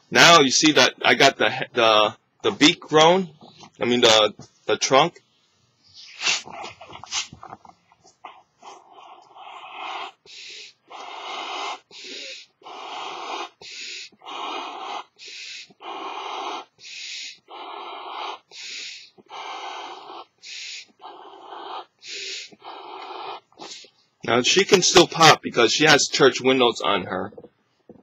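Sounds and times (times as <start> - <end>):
breath puffing into balloon: 5.9 - 23.9
person inhaling: 10.2 - 17.6, 18.3 - 21.0, 21.9 - 22.7, 23.6 - 24.0.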